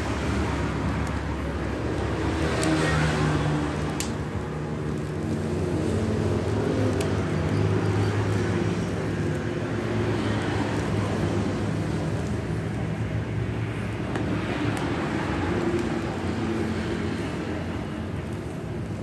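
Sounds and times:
sharp clicks: 3.9 - 4.2.

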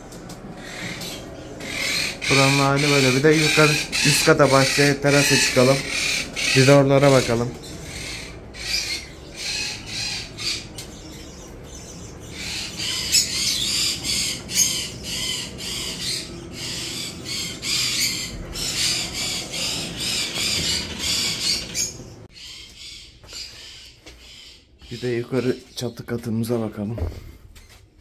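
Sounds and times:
birds squawking and chattering: 0.0 - 28.0.

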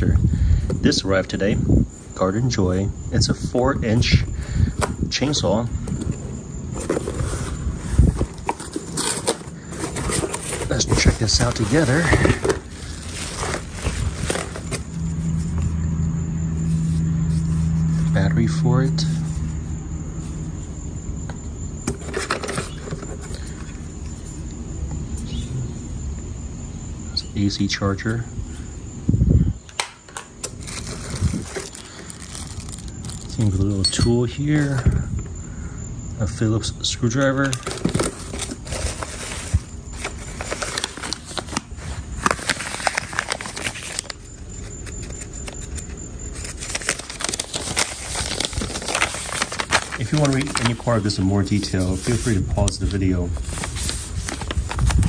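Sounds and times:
insect trill: 0.0 - 55.0
plastic and cardboard rustling: 5.8 - 15.6, 21.9 - 23.6, 30.4 - 33.6, 37.5 - 55.0
plastic and paper crinkling: 5.9 - 15.6, 30.4 - 33.7, 37.5 - 55.0.

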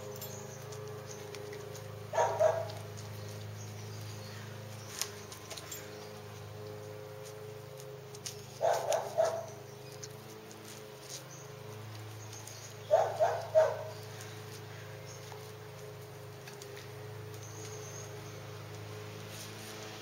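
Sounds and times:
dog barking: 2.1 - 2.9, 8.6 - 9.6, 12.8 - 14.0.

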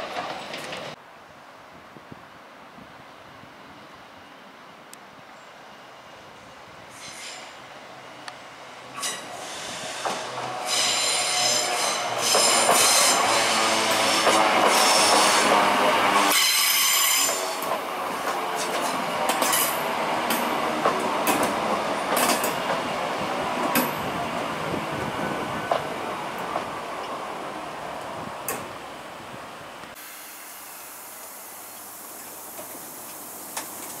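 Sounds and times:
train wheels squealing on curve: 6.9 - 7.6, 9.0 - 15.6, 16.3 - 17.7
train wheels clicking over rail joints: 9.0 - 11.0, 12.0 - 24.2.

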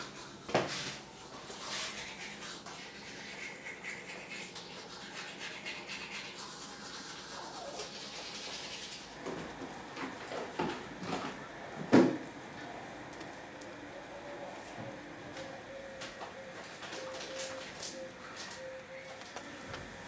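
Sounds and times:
toothbrush scrubbing teeth: 0.0 - 9.2.

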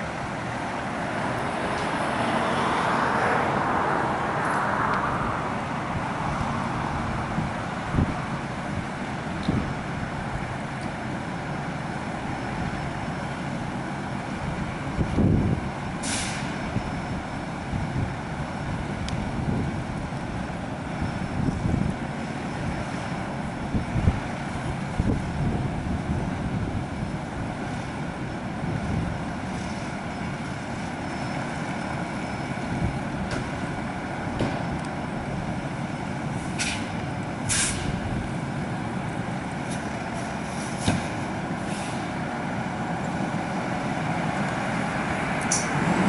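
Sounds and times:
diesel engines idling: 0.0 - 46.0
air brake hisses: 16.0 - 16.6, 36.4 - 38.0, 40.2 - 42.2.

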